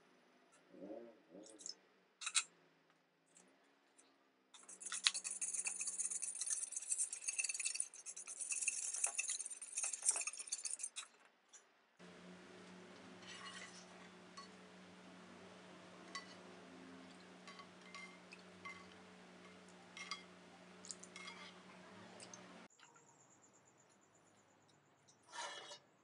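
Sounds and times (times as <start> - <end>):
whisk clinking in steel bowl: 4.6 - 10.9.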